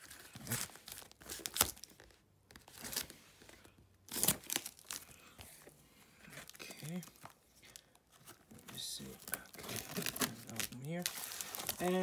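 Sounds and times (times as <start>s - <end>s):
cardboard and tape tearing: 0.0s - 3.2s, 4.1s - 5.1s, 8.5s - 12.0s.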